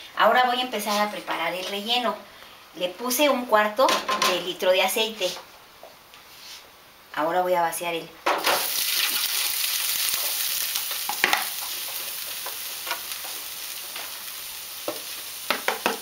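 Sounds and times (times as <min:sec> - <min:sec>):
meat sizzling in hot oil: 0:08.4 - 0:16.0.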